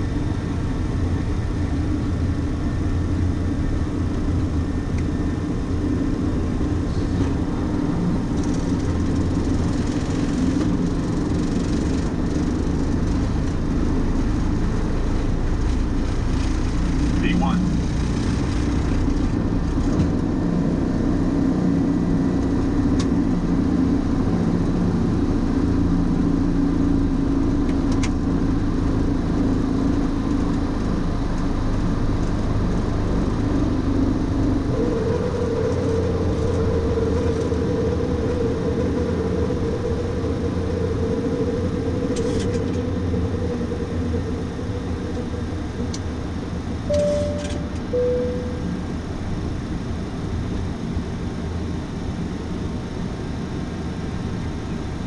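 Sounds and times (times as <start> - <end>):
jet engines at takeoff thrust: 0.0 - 55.0
short cockpit tones: 46.9 - 48.9.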